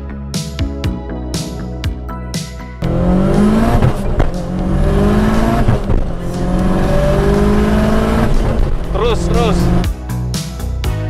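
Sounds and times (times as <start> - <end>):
turbocharged car engine accelerating: 2.8 - 9.9.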